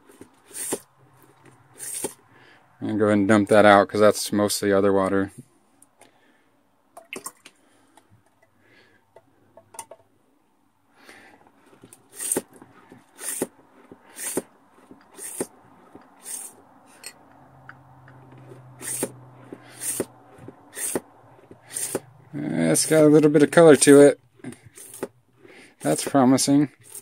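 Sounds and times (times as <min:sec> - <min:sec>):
hand pump filter strokes: 0:00.0 - 0:02.6, 0:11.1 - 0:27.0.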